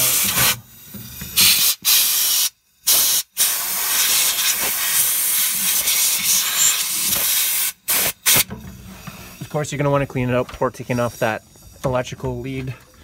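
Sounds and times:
compressed air hissing from blow gun: 0:00.0 - 0:09.6.

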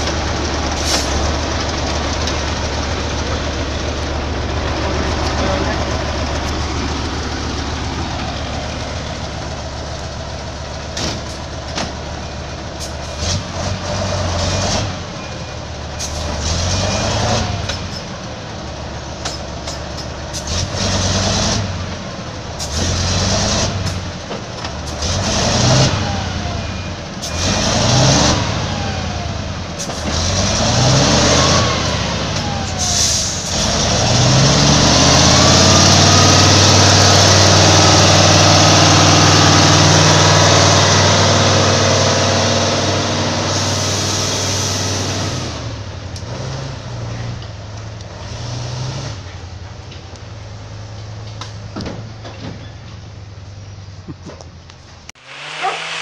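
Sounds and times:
wood chipper engine labouring: 0:00.0 - 0:52.7, 0:55.2 - 0:56.0
hiss: 0:43.5 - 0:45.2, 0:55.2 - 0:56.0.

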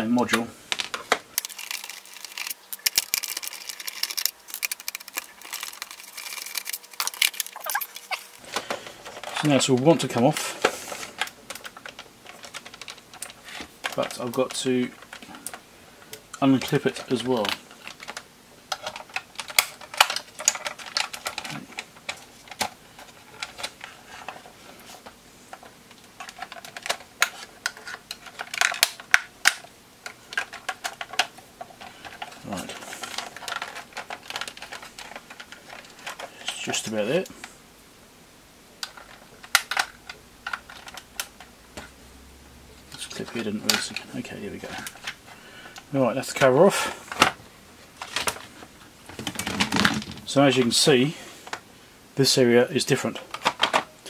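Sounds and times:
plastic clips clicking and creaking: 0:00.8 - 0:10.5, 0:11.2 - 0:37.3, 0:38.8 - 0:41.9, 0:53.3 - 0:53.9.

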